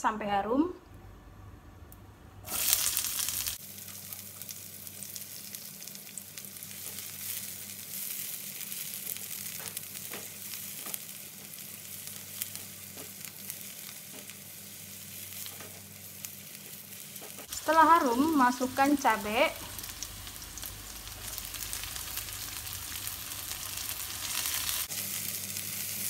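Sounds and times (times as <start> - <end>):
garlic sizzling in hot oil: 2.4 - 26.0.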